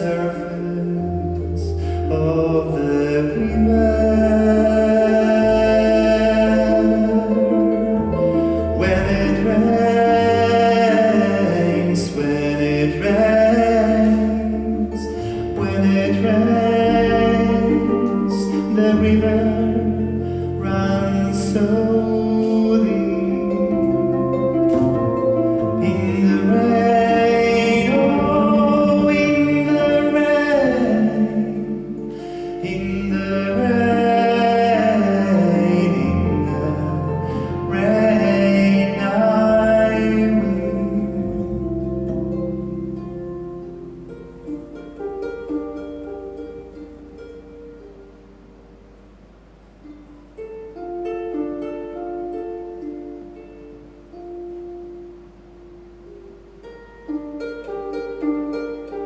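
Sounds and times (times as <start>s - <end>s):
man singing slow song: 0.0s - 24.8s, 25.6s - 42.8s
double bass long low notes: 0.0s - 50.0s
plucked harp: 0.0s - 59.0s.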